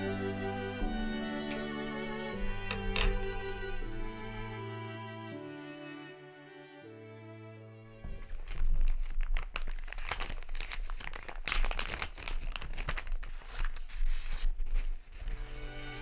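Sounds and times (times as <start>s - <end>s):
plastic bag and tissue paper crinkling: 8.0s - 15.6s.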